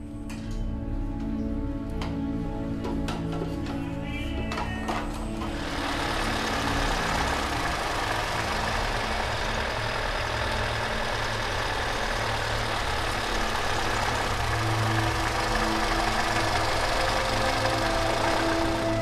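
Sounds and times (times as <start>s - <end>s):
truck engine running: 0.8s - 19.0s.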